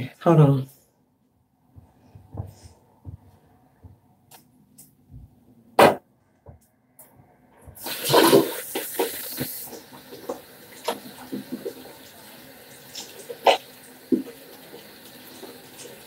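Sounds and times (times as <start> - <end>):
sharp knock: 5.8 - 6.0
tap water running: 7.8 - 16.0.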